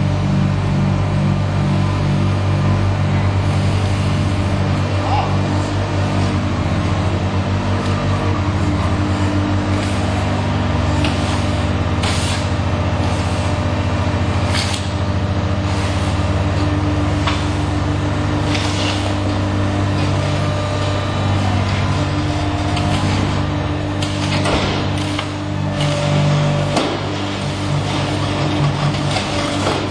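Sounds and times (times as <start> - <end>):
machine humming: 0.0 - 29.9.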